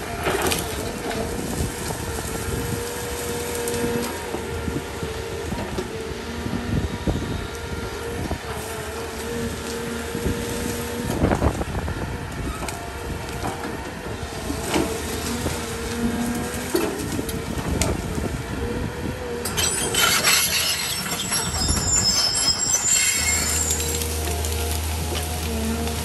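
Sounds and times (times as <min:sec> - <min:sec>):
excavator engine running: 0:00.0 - 0:26.0.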